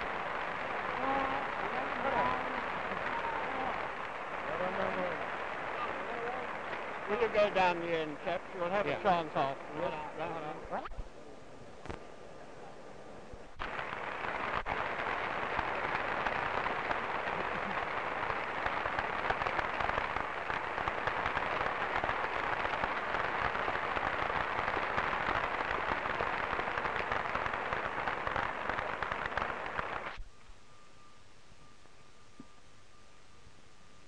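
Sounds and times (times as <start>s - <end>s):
crowd applauding: 0.0s - 10.5s, 13.6s - 30.2s.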